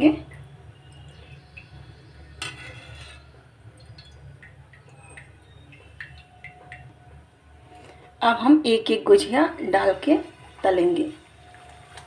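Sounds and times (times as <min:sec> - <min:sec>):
hot oil ticking and popping: 0:00.0 - 0:02.4, 0:03.2 - 0:08.0
low steady hum: 0:00.0 - 0:12.0.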